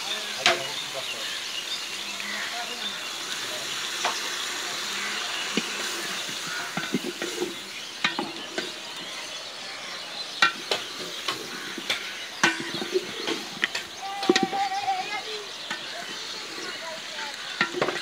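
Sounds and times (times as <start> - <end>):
steady hiss: 0.0 - 18.0
wooden spatula scraping food: 4.0 - 9.8, 10.4 - 18.0
spatula knocking metal pot: 10.4 - 14.6.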